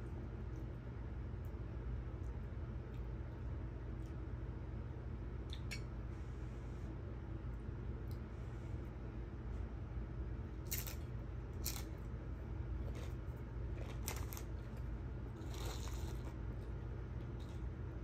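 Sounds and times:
steady low hum: 0.0s - 18.0s
crunchy food chewing: 10.6s - 17.8s.

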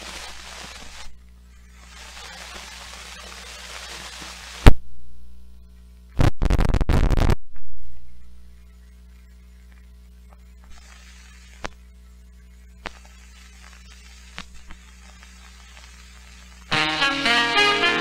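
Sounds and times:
steady mains hum: 0.0s - 18.0s
faint soundtrack clicks: 9.1s - 10.8s.

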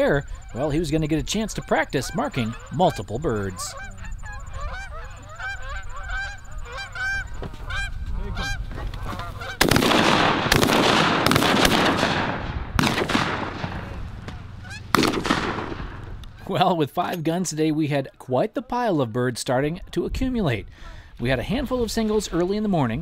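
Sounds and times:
geese honking: 0.0s - 16.8s
shotgun blasts: 9.6s - 16.4s.

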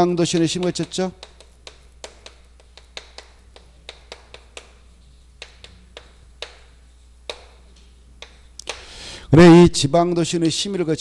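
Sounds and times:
chalk tapping on blackboard: 0.1s - 8.9s.

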